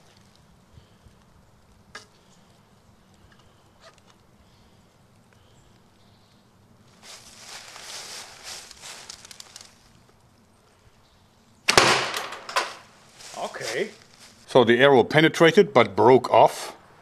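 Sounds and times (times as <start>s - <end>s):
loud rustling: 6.9s - 10.0s, 11.8s - 14.5s.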